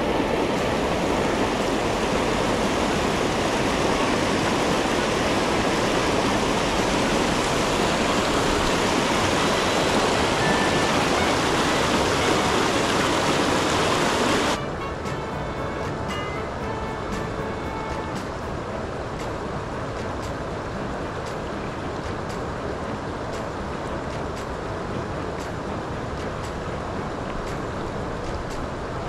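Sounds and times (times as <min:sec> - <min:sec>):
stream rushing over rocks: 0:00.0 - 0:29.0.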